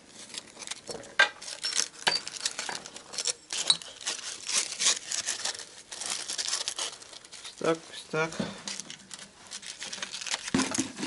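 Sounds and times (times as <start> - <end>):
sandpaper rustling and crinkling: 2.3 - 11.0.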